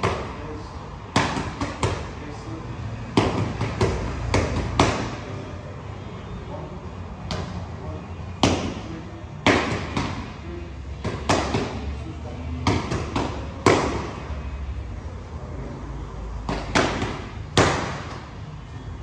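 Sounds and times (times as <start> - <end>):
boxing gloves striking mitts: 1.1 - 2.1, 3.1 - 5.2, 8.4 - 10.4, 11.0 - 11.9, 12.6 - 14.3, 16.4 - 18.3.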